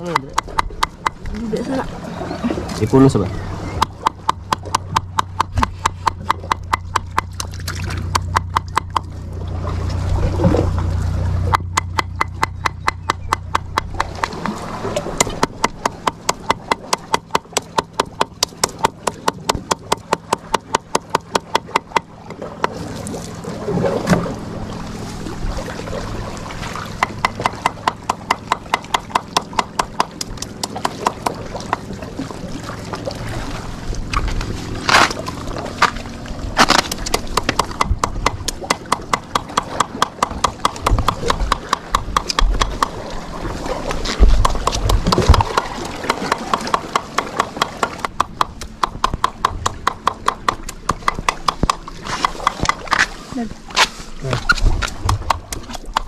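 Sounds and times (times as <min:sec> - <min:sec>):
knife chopping on wooden board: 0:00.0 - 0:01.2, 0:03.8 - 0:09.1, 0:11.5 - 0:14.5, 0:15.2 - 0:22.8, 0:27.0 - 0:31.4, 0:36.6 - 0:43.0, 0:44.4 - 0:53.0
low steady hum: 0:00.0 - 0:56.0.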